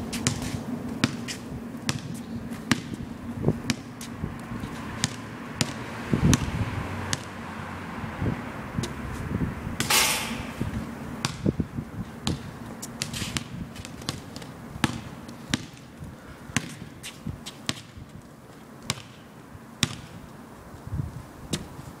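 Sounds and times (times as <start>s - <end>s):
basketball bouncing on pavement: 0.0s - 7.5s, 8.7s - 20.3s.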